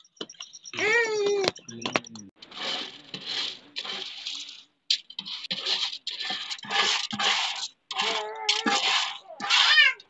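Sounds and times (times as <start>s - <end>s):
rice grains scraped against metal basin: 2.4s - 9.8s.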